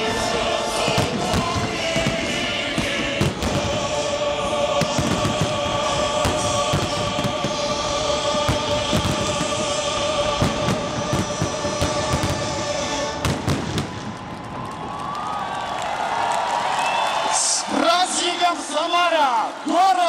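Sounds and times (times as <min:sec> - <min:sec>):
choir holding a chord: 0:00.0 - 0:13.8
fireworks bursting: 0:00.0 - 0:15.8.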